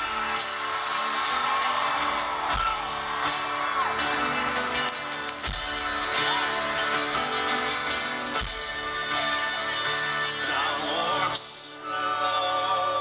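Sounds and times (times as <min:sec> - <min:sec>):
live band playing: 0:00.0 - 0:13.0
person singing: 0:08.4 - 0:13.0.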